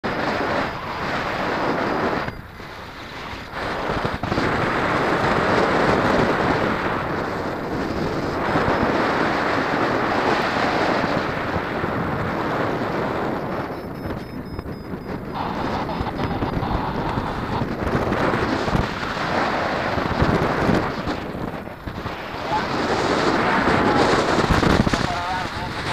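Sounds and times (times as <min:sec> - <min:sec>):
gusty wind noise on microphone: 0:00.0 - 0:25.9.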